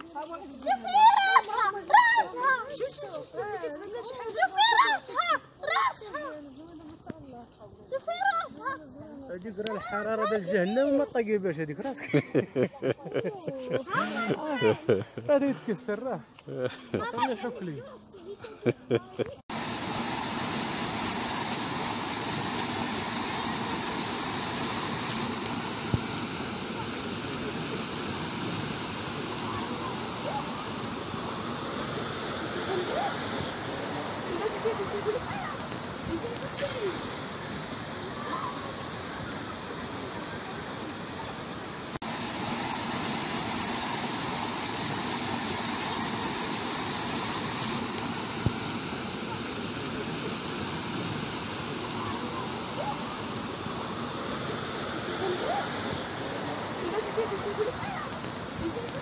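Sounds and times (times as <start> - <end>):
water rushing over weirs: 19.5 - 59.0.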